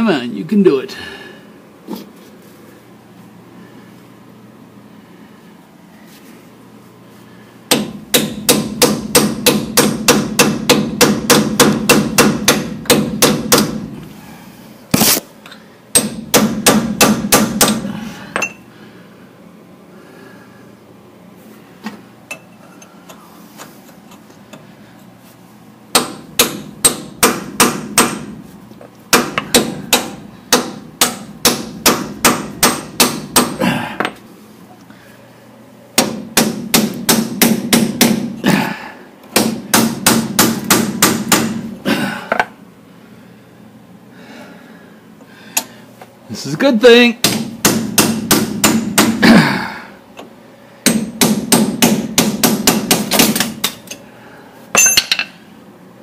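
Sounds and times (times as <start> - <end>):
hammer striking metal: 7.7 - 13.8, 29.1 - 33.6, 54.8 - 55.4.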